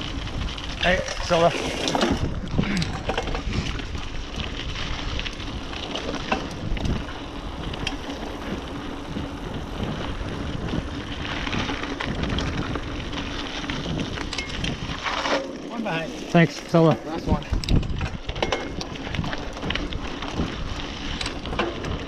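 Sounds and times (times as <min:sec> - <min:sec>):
wind on microphone: 0:00.0 - 0:05.7, 0:06.3 - 0:15.1, 0:17.3 - 0:22.0
bike clicks and knocks: 0:00.0 - 0:22.0
bike tyres rolling on dirt: 0:00.0 - 0:22.0.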